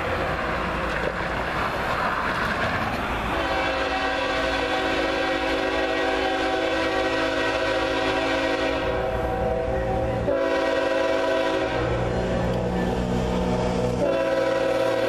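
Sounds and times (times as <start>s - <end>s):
passing car tyre noise: 0.0s - 15.0s
locomotive horn: 3.3s - 15.0s.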